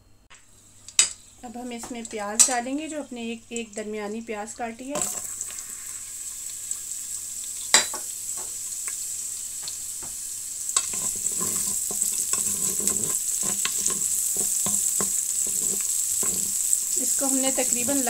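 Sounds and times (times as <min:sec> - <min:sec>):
onion sizzling in hot oil: 0:00.5 - 0:18.0
utensil scraping and tapping pot: 0:10.8 - 0:18.0.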